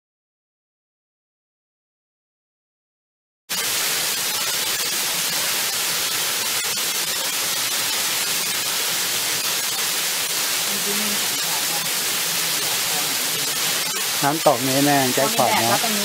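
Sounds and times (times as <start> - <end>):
small waterfall splashing onto rocks: 3.5 - 16.0.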